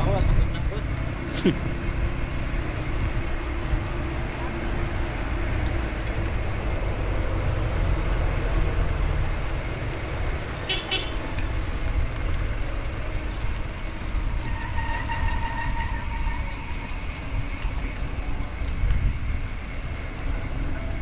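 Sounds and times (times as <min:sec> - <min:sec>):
road traffic: 0:00.0 - 0:21.0
wind and road noise: 0:00.0 - 0:21.0
vehicle horn: 0:10.7 - 0:11.2, 0:14.4 - 0:16.7.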